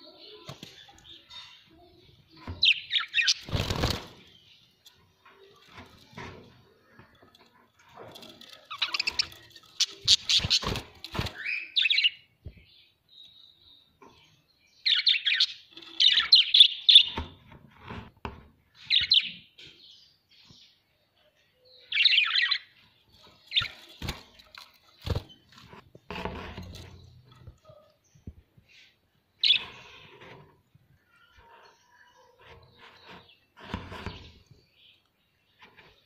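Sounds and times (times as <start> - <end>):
budgerigars chirping and chattering: 8.0 - 12.2, 29.4 - 30.3.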